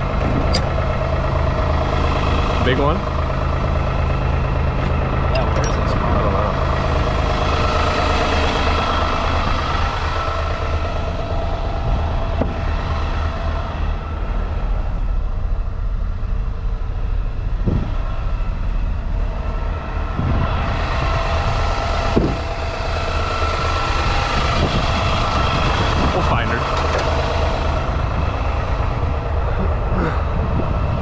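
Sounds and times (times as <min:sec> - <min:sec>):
engine running steadily: 0:00.0 - 0:31.0.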